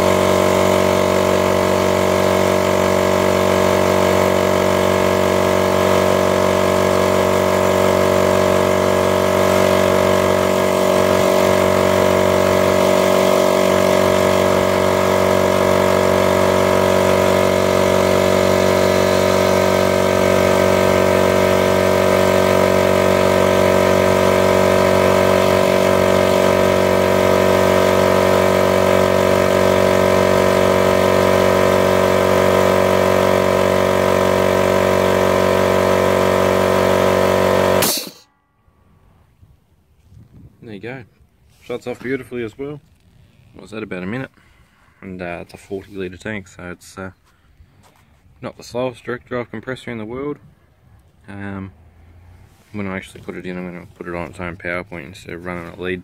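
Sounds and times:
air compressor running: 0.0s - 38.3s.

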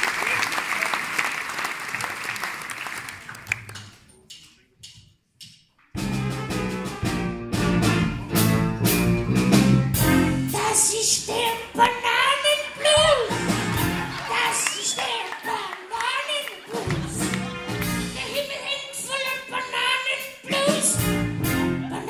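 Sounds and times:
applause: 0.0s - 4.0s, 12.4s - 18.2s
wind band playing blues: 6.0s - 22.0s.

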